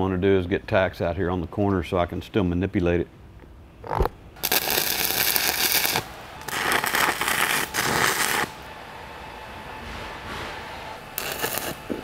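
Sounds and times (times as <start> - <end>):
welding arc crackling: 3.9 - 8.7, 11.1 - 12.0.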